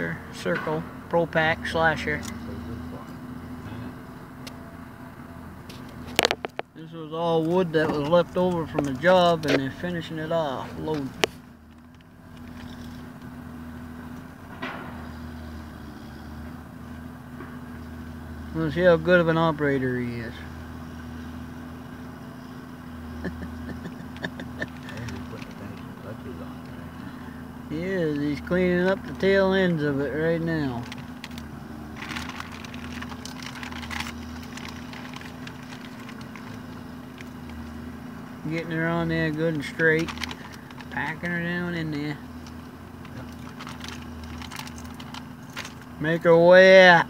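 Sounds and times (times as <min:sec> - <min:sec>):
engine idling: 0:00.0 - 0:47.0
sharp crackling clicks: 0:05.7 - 0:06.7, 0:30.8 - 0:37.9, 0:40.0 - 0:41.0, 0:42.3 - 0:46.0.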